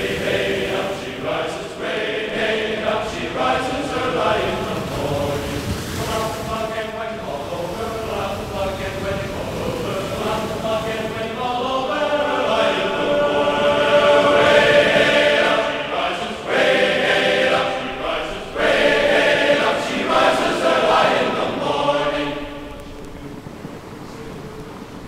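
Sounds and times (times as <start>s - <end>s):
choir singing: 0.0s - 23.4s.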